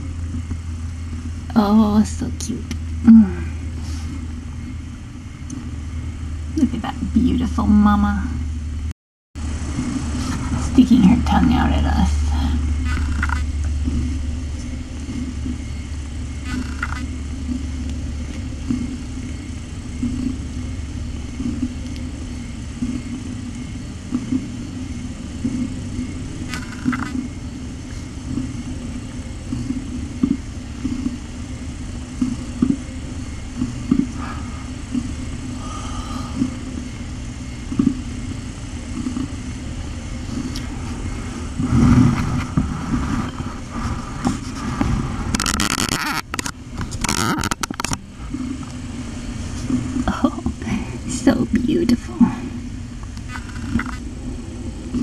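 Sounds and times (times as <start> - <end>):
cat purring: 9.6 - 45.4.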